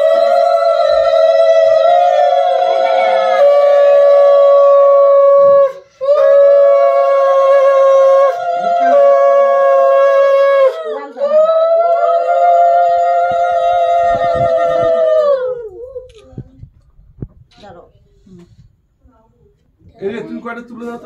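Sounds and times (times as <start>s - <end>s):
wind instrument long held notes: 0.0s - 16.2s.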